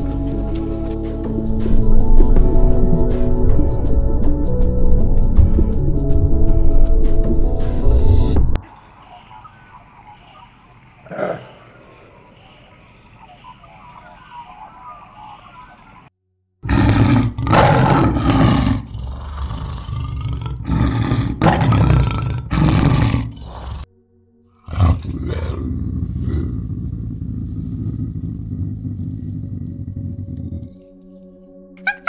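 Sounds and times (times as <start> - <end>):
quieter steady animal sound: 8.6 - 23.9, 24.5 - 32.0
male lions roaring: 9.6 - 16.0, 16.6 - 23.9, 24.6 - 30.9.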